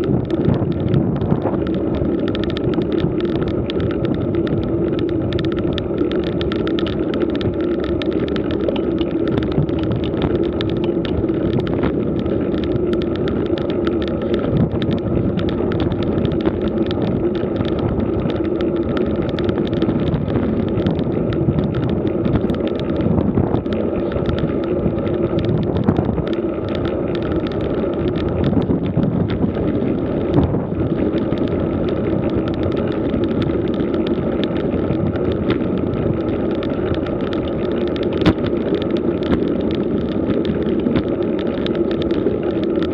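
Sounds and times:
bike tyre rumble: 0:00.0 - 0:42.9
constant hum: 0:00.0 - 0:42.9
small rattles and clicks: 0:00.0 - 0:42.9
wind noise: 0:00.0 - 0:42.9.

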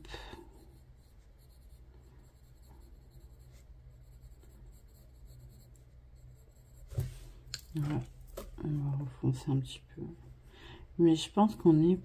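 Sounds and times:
pencils scratching on paper: 0:00.0 - 0:08.0
low steady hum: 0:00.0 - 0:12.0.

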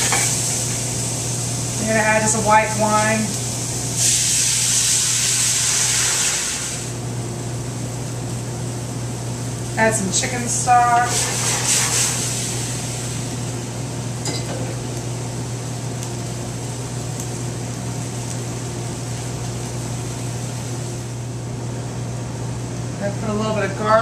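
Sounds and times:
stock sizzling in hot pan: 0:00.0 - 0:21.5
kitchen ventilation hum: 0:00.0 - 0:24.0
pans and utensils clinking: 0:14.2 - 0:14.8.

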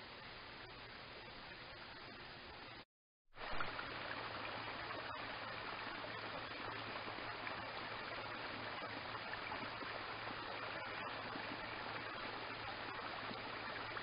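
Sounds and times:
low even hum: 0:00.0 - 0:02.8, 0:03.4 - 0:14.0
running water rushing: 0:03.4 - 0:14.0.

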